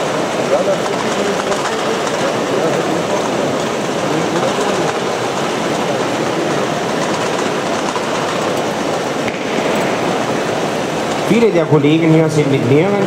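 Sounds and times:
model tractor mechanical rattling: 0.0s - 9.2s.

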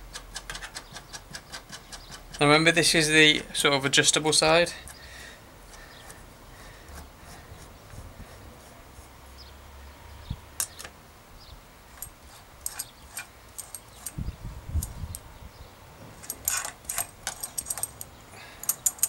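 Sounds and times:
spanner metallic clicks: 10.6s - 11.0s, 12.0s - 14.2s, 16.2s - 19.0s.

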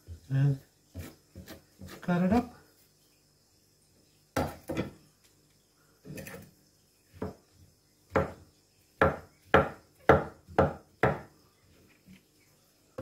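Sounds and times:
cleaver knocking on wooden board: 9.0s - 11.3s.

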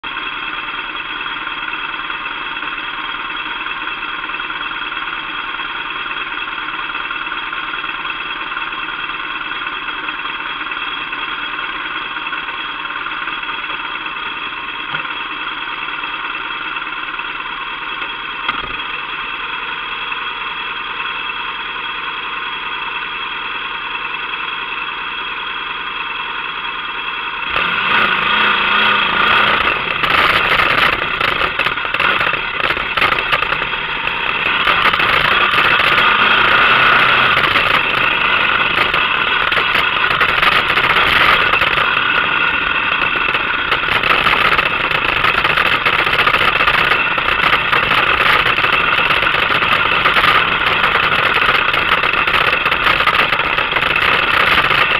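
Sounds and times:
motorcycle engine idling: 0.0s - 27.5s, 29.6s - 54.9s.

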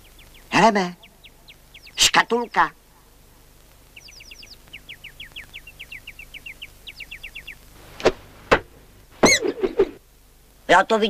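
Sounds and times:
high chirps: 0.0s - 2.7s, 3.8s - 7.8s
sharp knocks: 8.0s - 9.5s.

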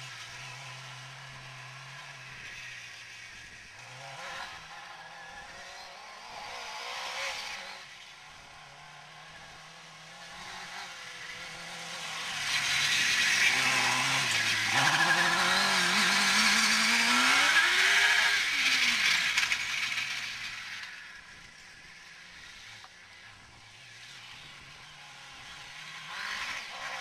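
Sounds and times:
buggy engine revving past: 3.5s - 21.1s.

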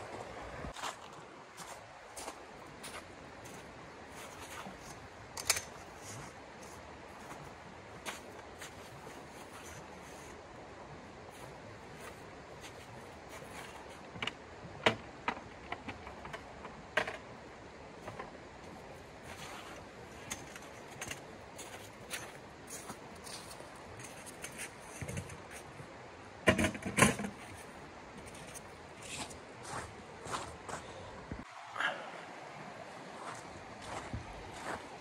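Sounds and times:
stream rushing: 0.0s - 26.5s, 27.3s - 35.0s
camp gear clicking and rattling: 4.5s - 7.4s, 11.9s - 17.4s, 18.0s - 25.8s.

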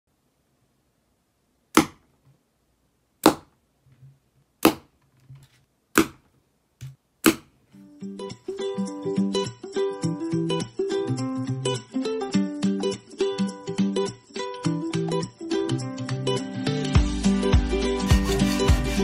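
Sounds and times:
arrows hitting cardboard target: 1.8s - 2.1s, 3.2s - 3.5s, 4.6s - 7.6s
plucked-string music: 7.9s - 19.0s.

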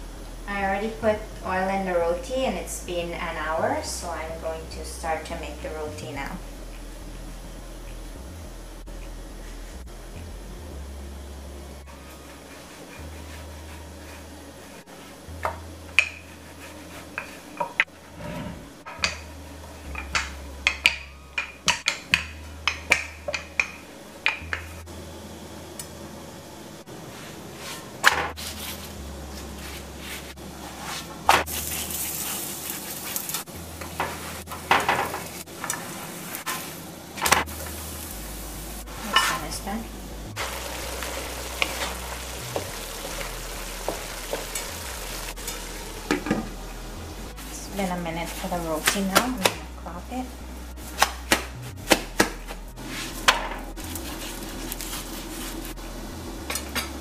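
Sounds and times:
dough sizzling on griddle: 28.4s - 39.6s, 40.3s - 46.5s, 52.8s - 56.9s.

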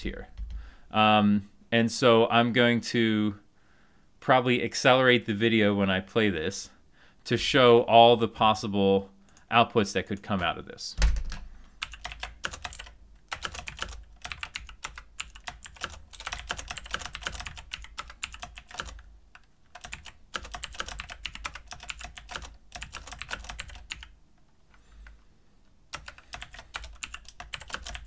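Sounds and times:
keyboard typing: 11.0s - 25.2s, 25.9s - 28.0s.

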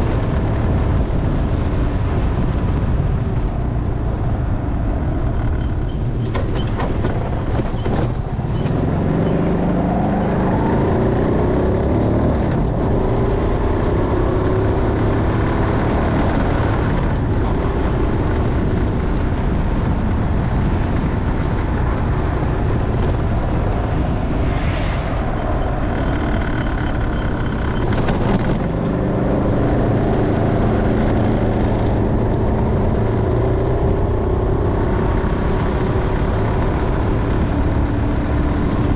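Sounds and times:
motorcycle engine accelerating: 0.0s - 38.9s
low rush of noise: 22.2s - 27.7s.

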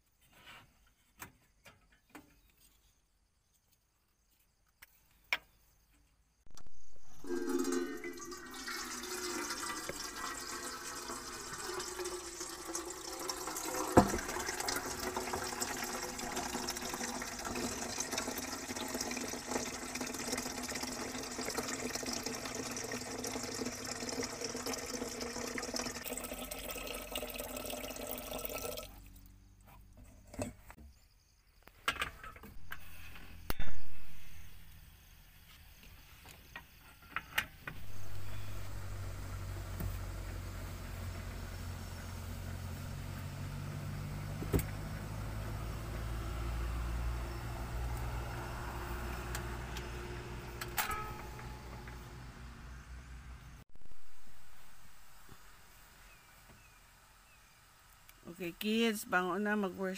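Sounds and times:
water pouring into kettle: 7.0s - 29.2s.

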